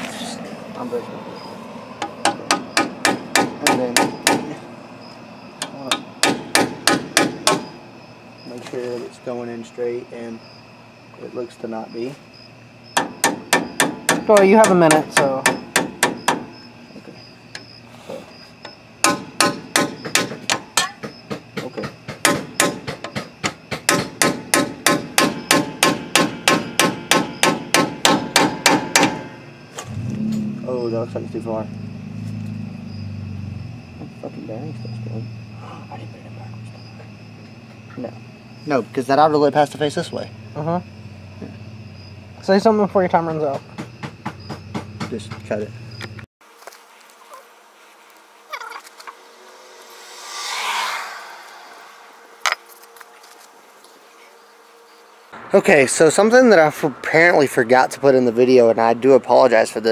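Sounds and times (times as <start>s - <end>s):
hammer tapping metal: 2.0s - 4.6s, 5.6s - 7.7s, 13.0s - 16.5s, 19.0s - 29.3s
hammer striking metal seal driver: 23.9s - 29.3s.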